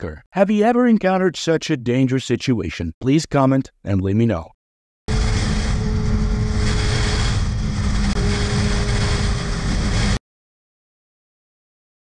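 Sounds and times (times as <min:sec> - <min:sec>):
rushing wind noise: 0:05.1 - 0:10.2.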